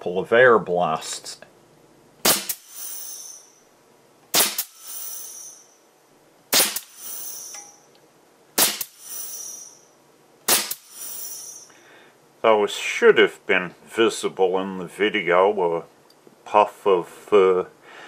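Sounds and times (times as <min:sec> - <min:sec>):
air rifle sharp cracks: 0:02.2 - 0:02.7, 0:04.3 - 0:04.8, 0:06.5 - 0:07.0, 0:08.6 - 0:09.0, 0:10.5 - 0:11.0
short air hiss: 0:04.4 - 0:05.5, 0:06.6 - 0:07.5, 0:08.6 - 0:09.6, 0:10.5 - 0:12.0.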